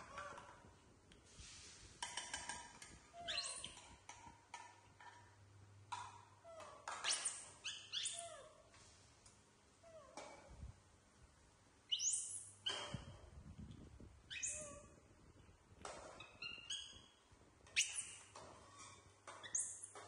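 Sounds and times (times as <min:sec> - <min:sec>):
baby monkeys squealing: 0:14.3 - 0:15.0.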